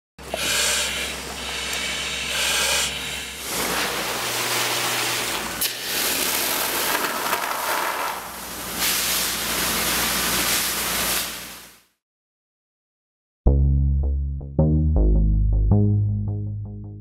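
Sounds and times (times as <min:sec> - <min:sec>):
fire hose water spraying: 0:00.3 - 0:11.8.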